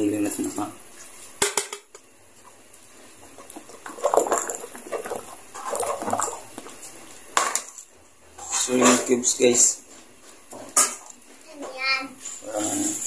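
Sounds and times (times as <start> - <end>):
ladle stirring thick gravy: 2.4 - 7.2.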